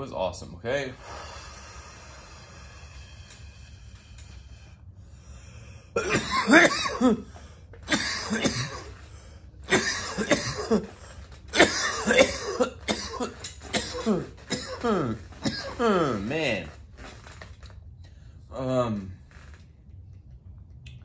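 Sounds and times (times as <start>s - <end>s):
man coughing hard: 6.0s - 7.3s, 7.9s - 9.0s, 9.7s - 16.3s.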